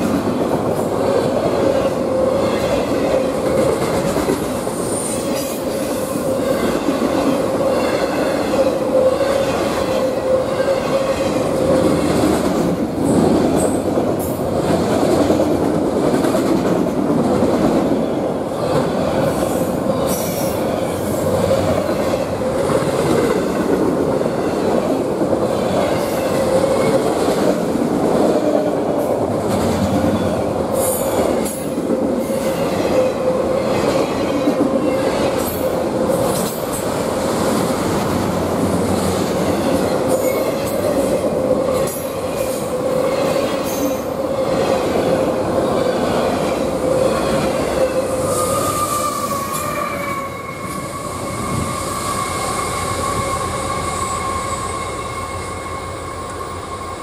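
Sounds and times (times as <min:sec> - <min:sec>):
diesel locomotive: 0:00.0 - 0:57.0
squealing wheels: 0:47.1 - 0:57.0.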